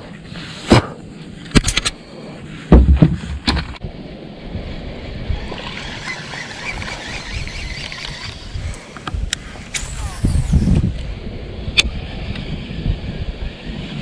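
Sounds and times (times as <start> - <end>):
wind rumble on microphone: 0.0 - 14.0
spool spinning whine: 4.0 - 14.0
fishing reel whirring: 5.4 - 8.8, 9.7 - 11.2.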